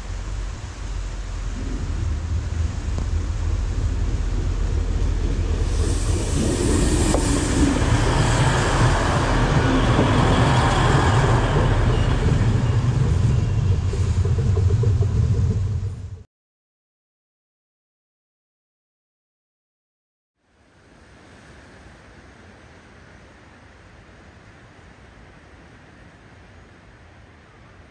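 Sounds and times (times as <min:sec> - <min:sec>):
diesel train engine rumble: 0:00.0 - 0:16.2
wheels on rails: 0:00.0 - 0:16.2.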